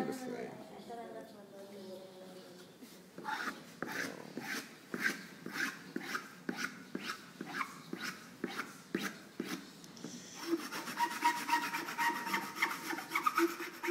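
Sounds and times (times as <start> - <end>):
tool scraping clay: 3.2 - 9.6, 10.4 - 13.9.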